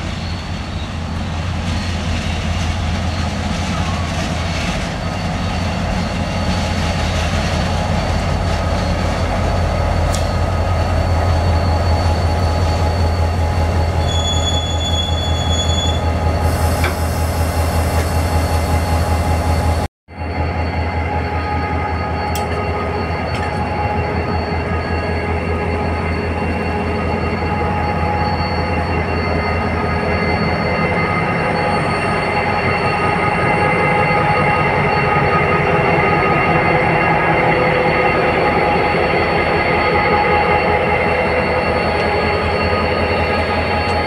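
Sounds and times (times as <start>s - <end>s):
diesel locomotive engine drone: 0.0s - 44.0s
high squeal: 0.0s - 44.0s.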